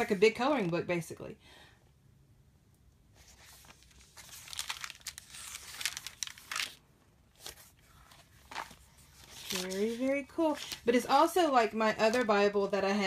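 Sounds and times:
thin pages turning: 0:03.2 - 0:11.0.

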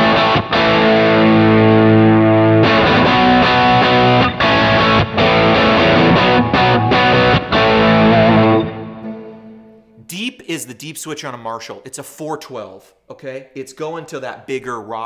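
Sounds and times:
distorted electric guitar chords: 0:00.0 - 0:10.0.

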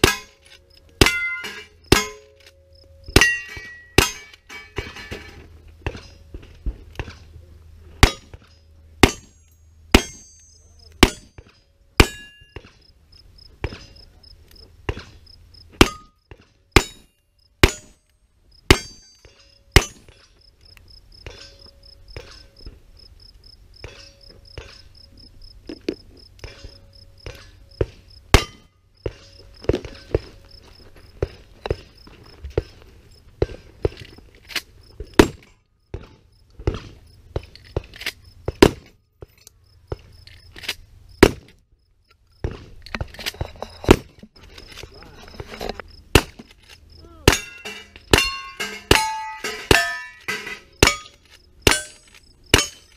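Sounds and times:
steel target ringing: 0:01.0 - 0:05.2, 0:09.0 - 0:11.4, 0:12.0 - 0:12.6, 0:16.8 - 0:18.0, 0:18.7 - 0:20.2, 0:28.3 - 0:28.8, 0:47.3 - 0:52.9
gunshots: 0:41.2 - 0:41.5.

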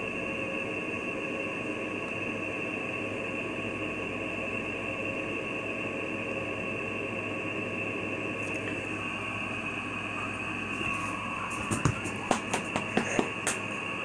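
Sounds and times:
high-pitched whine: 0:00.0 - 0:14.0.

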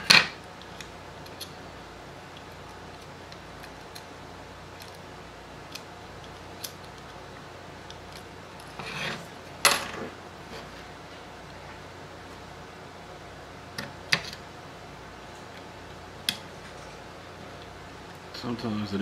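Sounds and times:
metal tool scraping: 0:08.6 - 0:09.3.

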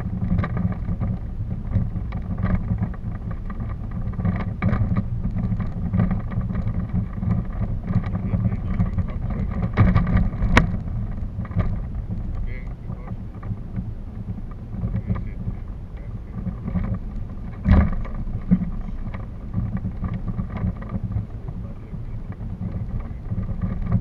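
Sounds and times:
wind rumbling on microphone: 0:00.0 - 0:24.0
clicks and knocks: 0:00.2 - 0:24.0.

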